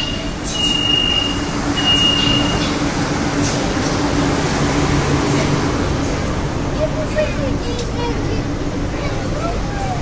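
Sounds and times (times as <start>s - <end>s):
door-closing warning beeps: 0.0s - 2.7s
subway car hum: 0.0s - 10.0s.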